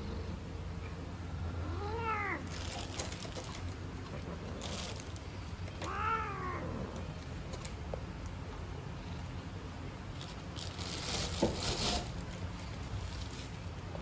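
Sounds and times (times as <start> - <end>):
cat yowling: 1.6 - 2.5, 5.8 - 6.9.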